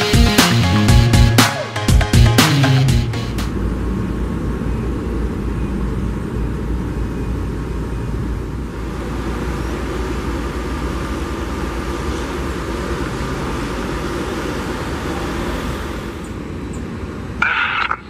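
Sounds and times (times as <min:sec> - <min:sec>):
air traffic control radio: 0:17.3 - 0:18.0.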